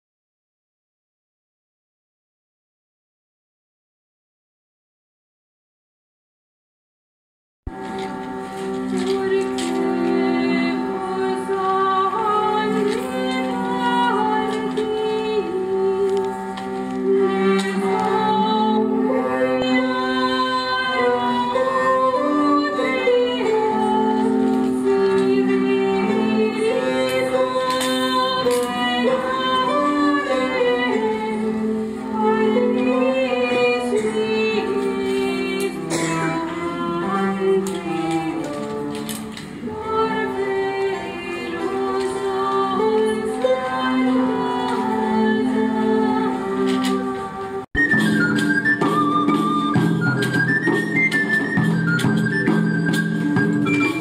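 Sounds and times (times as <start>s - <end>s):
bowed fiddle drone and melody: 7.7s - 47.2s
voices singing: 9.0s - 47.7s.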